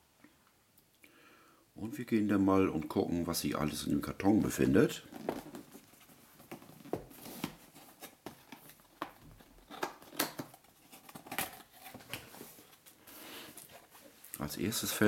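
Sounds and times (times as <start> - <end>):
cardboard box rustling: 4.4 - 14.2.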